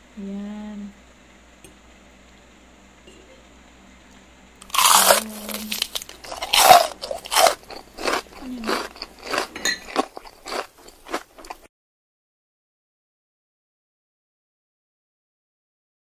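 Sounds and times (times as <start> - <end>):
person chewing with crunching bites: 4.6 - 11.7.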